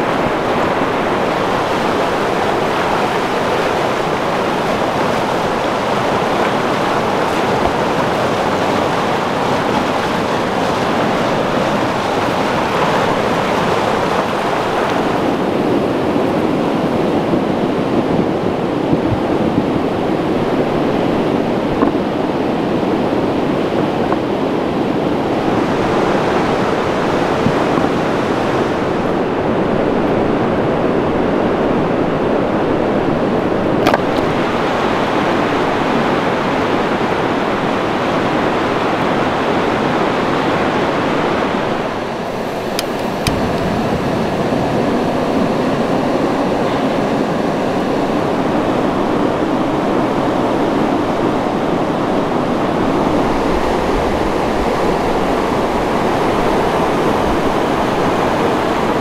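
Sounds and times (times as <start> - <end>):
water rushing: 0.0 - 59.0.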